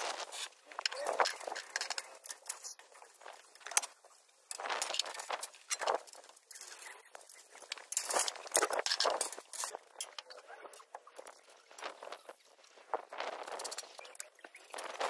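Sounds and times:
metal scaffold tubes clinking: 0:04.6 - 0:10.3.

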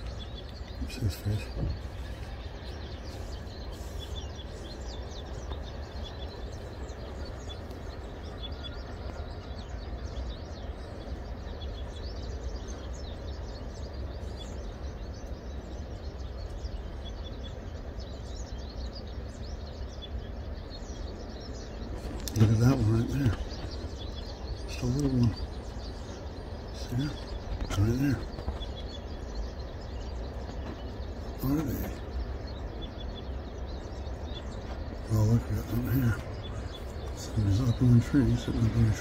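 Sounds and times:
small birds chirping: 0:00.0 - 0:39.0.

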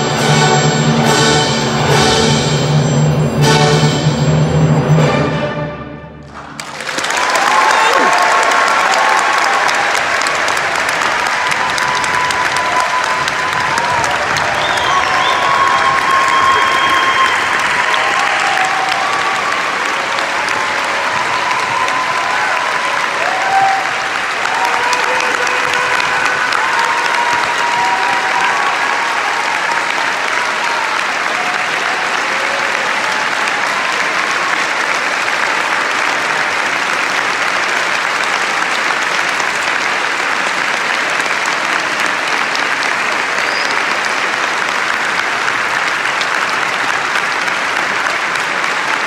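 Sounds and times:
audience clapping: 0:06.2 - 0:49.0
audience cheering: 0:06.3 - 0:49.0.

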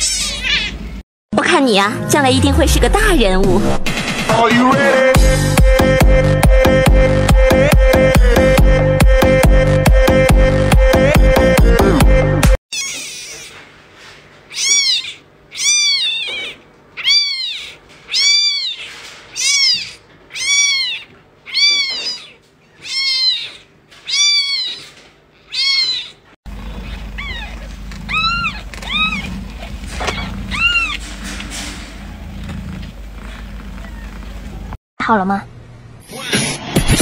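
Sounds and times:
kitten meowing: 0:00.0 - 0:00.8, 0:12.7 - 0:13.5, 0:14.5 - 0:26.2, 0:26.8 - 0:29.4, 0:30.1 - 0:31.0
newborn kitten faint meows: 0:14.5 - 0:24.9, 0:25.5 - 0:26.2, 0:26.8 - 0:29.3
steady low hum: 0:26.5 - 0:34.8.

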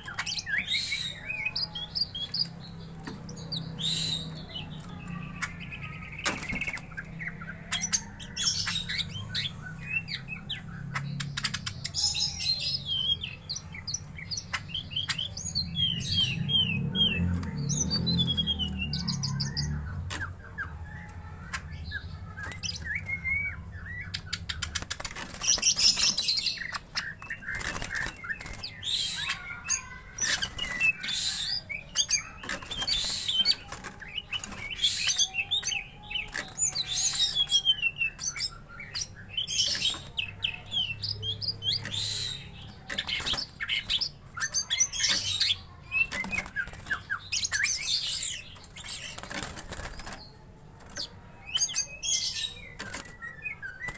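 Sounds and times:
birds chirping and whistling: 0:00.0 - 0:53.9
wings fluttering against cage bars: 0:02.2 - 0:09.0, 0:24.2 - 0:53.9.

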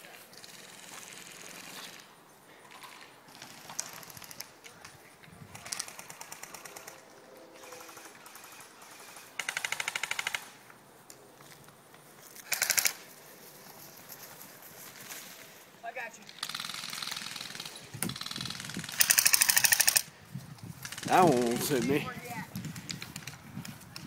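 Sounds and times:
airsoft guns firing bursts: 0:05.5 - 0:07.0, 0:07.6 - 0:10.6, 0:12.5 - 0:13.0, 0:16.3 - 0:20.1, 0:20.8 - 0:22.1.

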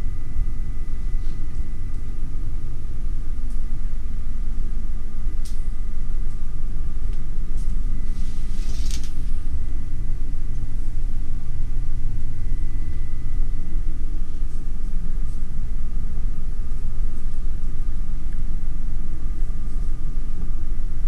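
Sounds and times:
faint steady whine: 0:00.0 - 0:21.0
shower curtain rustle: 0:08.0 - 0:09.2.

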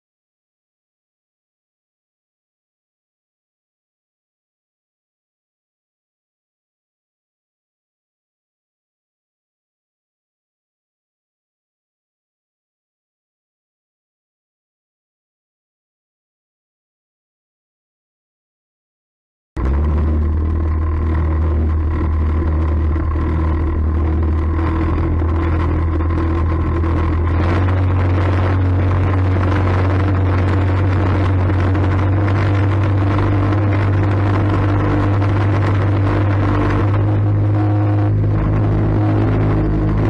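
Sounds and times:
outboard motor running: 0:19.6 - 0:40.0.

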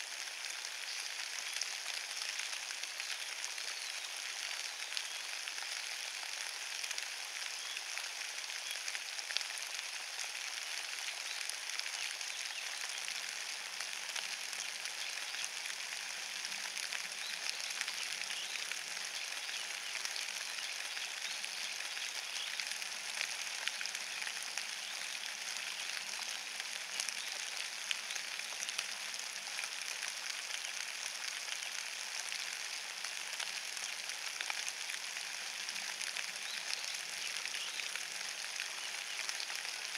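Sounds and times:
rain on wet leaves: 0:00.0 - 0:39.9.

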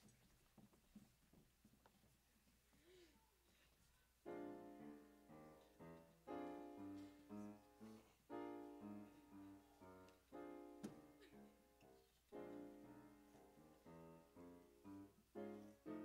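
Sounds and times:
piano chords: 0:04.2 - 0:16.0.

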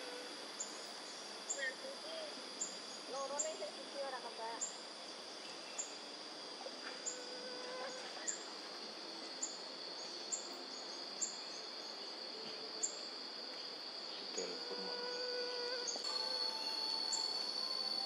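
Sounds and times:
high-pitched insect drone: 0:00.0 - 0:18.0
faint low whistle: 0:16.0 - 0:18.0.

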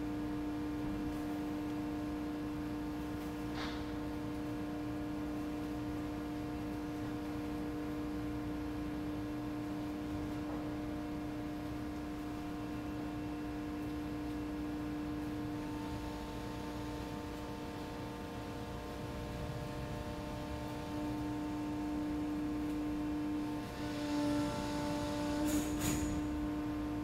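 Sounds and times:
door machinery humming: 0:09.1 - 0:27.0.

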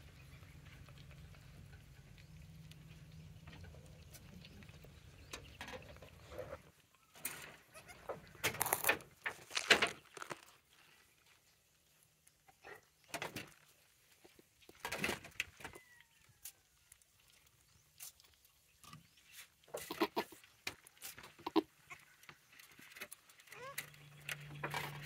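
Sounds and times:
goat bleating: 0:19.8 - 0:20.4, 0:21.4 - 0:22.0.

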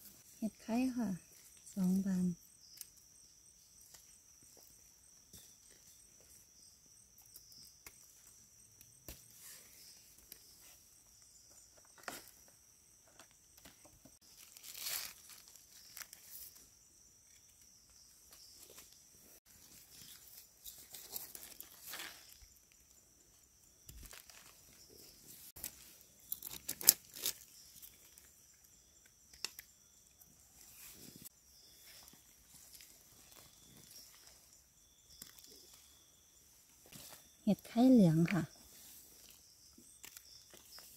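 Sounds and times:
hands rustling through dry leaves: 0:14.2 - 0:16.6.

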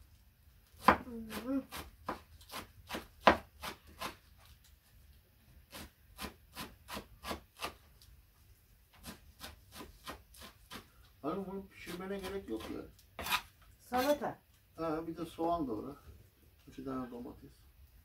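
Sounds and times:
knife chopping on wooden board: 0:00.8 - 0:04.2, 0:05.7 - 0:07.8, 0:09.0 - 0:10.9.

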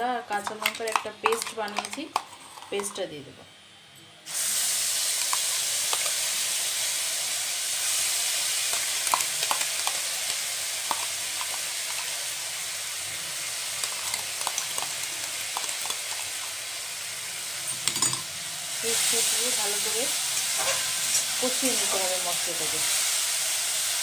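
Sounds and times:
paste sizzling in hot oil: 0:04.3 - 0:24.0
oil popping and crackling: 0:04.7 - 0:06.8, 0:07.8 - 0:17.0.

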